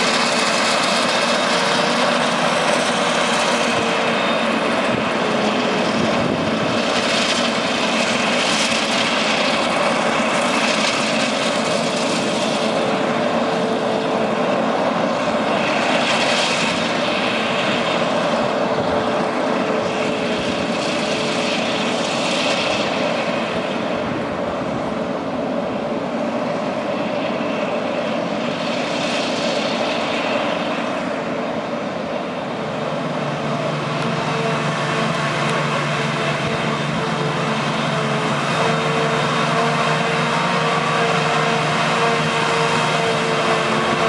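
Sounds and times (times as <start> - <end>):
forage harvester engine whining: 0.0 - 44.0
tractor engine: 0.0 - 44.0.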